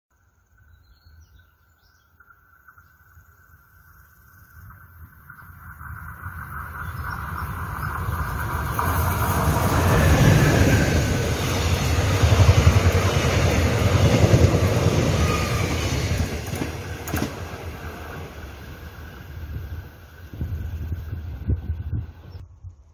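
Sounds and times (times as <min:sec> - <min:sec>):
train wheels rumbling on rails: 0:04.7 - 0:22.4.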